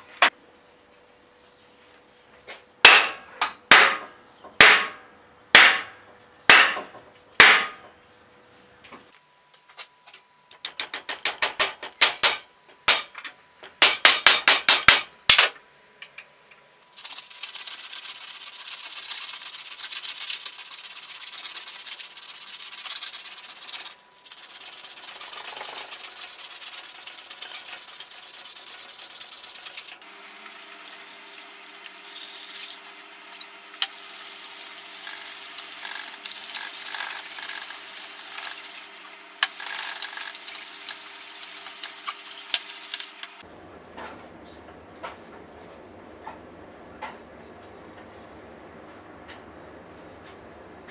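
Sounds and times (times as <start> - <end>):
sharp knocks: 5.6 - 7.8
hand file rasping wood: 17.1 - 30.0.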